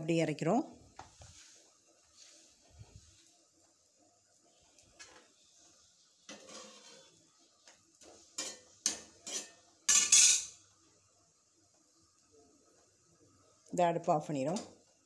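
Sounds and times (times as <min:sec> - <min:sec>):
metal spatula scraping a pan: 0:06.2 - 0:07.3, 0:08.0 - 0:10.6.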